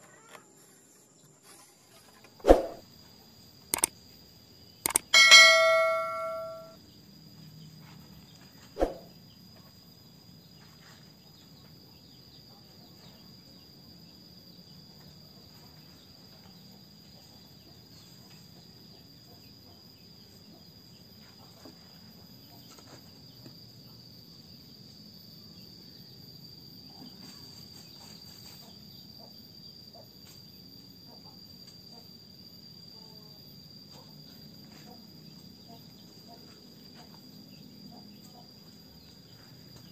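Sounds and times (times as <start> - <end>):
crickets droning: 0.0 - 39.9
mouse clicks: 4.9 - 5.1
bell ding: 4.9 - 6.8.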